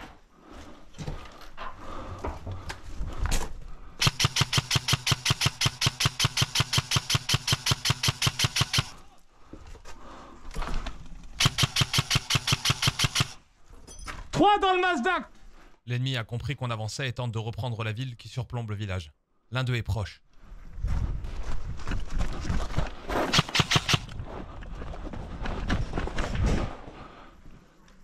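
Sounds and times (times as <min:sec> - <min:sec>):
airsoft rifle firing full auto: 0:04.0 - 0:09.0, 0:11.4 - 0:13.4, 0:23.3 - 0:24.1.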